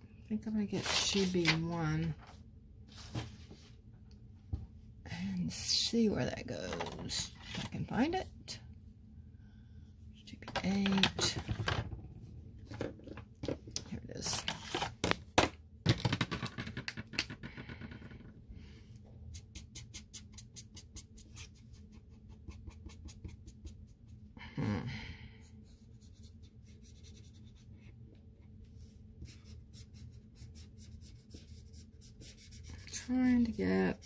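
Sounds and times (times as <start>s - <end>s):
marker tapping and scratching: 19.3s - 24.2s, 29.2s - 34.0s.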